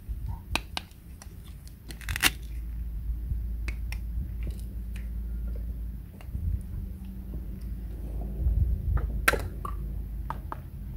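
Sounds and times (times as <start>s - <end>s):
steady low rumble: 0.0s - 10.9s
rasping tear: 1.4s - 2.6s.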